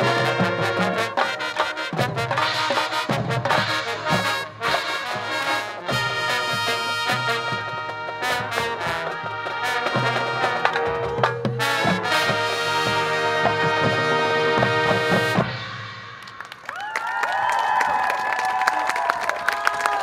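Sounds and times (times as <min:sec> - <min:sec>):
marching band brass: 0:00.0 - 0:16.6
drumline and percussion hits: 0:00.0 - 0:17.0.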